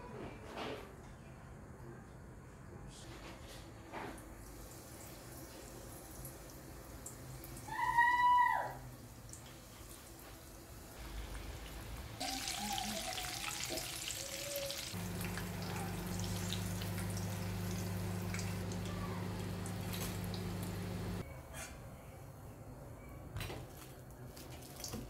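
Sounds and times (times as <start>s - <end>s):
oil sizzling and crackling: 9.0s - 21.2s
steady low hum: 15.0s - 21.2s.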